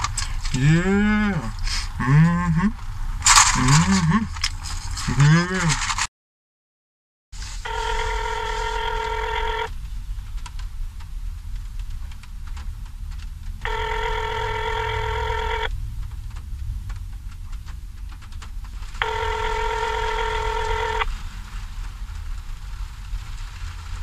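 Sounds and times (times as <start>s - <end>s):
phone ringback tone: 7.6s - 9.7s, 13.6s - 15.7s, 19.0s - 21.1s.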